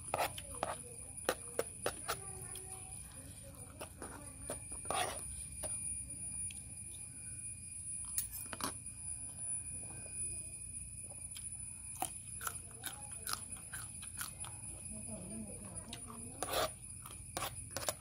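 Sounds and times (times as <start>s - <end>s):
steady high-pitched tone: 0.0s - 18.0s
chewing: 11.3s - 14.9s.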